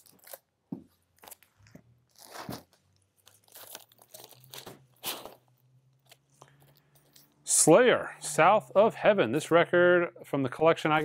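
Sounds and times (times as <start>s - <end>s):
record jackets flipped through: 1.2s - 6.5s.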